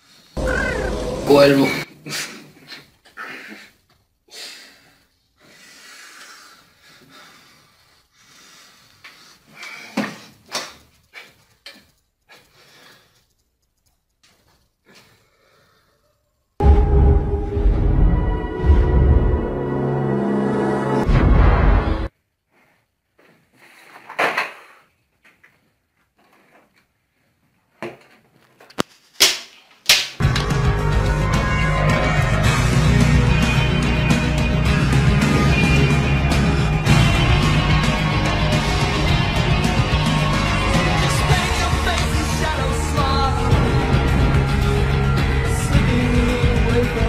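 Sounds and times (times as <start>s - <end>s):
person breathing heavily and wheezing: 2.0s - 11.5s, 12.3s - 13.4s, 14.8s - 16.3s
sharp clicks: 10.3s - 14.9s.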